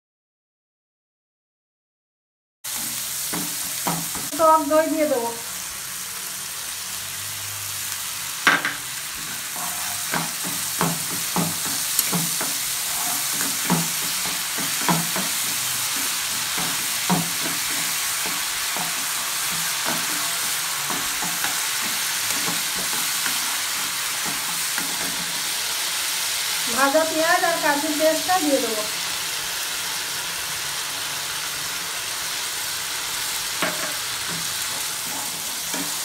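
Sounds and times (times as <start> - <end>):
spatula knocking and scraping pan: 2.7 - 4.4, 8.4 - 25.5, 33.6 - 36.0
food sizzling in oil: 2.7 - 36.0.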